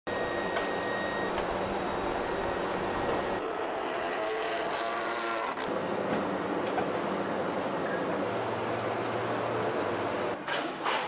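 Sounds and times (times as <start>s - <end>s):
pitched whine: 0.1s - 5.8s
factory machinery noise: 0.1s - 11.0s.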